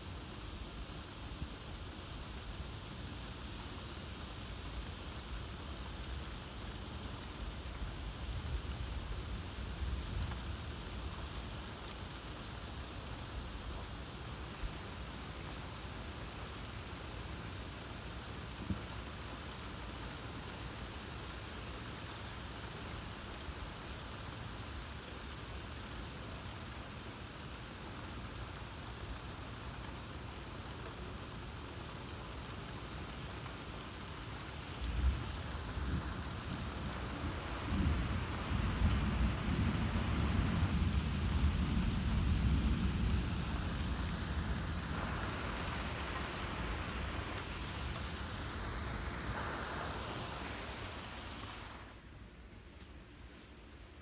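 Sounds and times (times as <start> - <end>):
steady rain falling: 0.0 - 54.0
thunder clap and rumble: 34.9 - 48.2.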